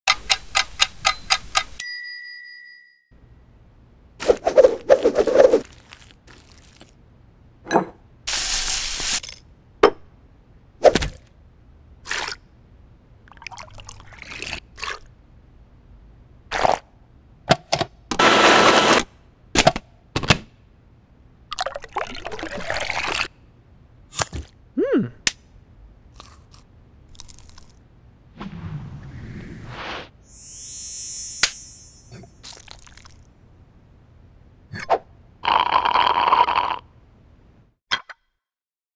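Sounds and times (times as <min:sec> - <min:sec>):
chime-like dings: 0:01.8 - 0:03.2
liquid pouring into jug: 0:13.3 - 0:15.0, 0:21.5 - 0:23.3
blender running: 0:18.2 - 0:19.0
thick milkshake pouring: 0:32.5 - 0:33.2.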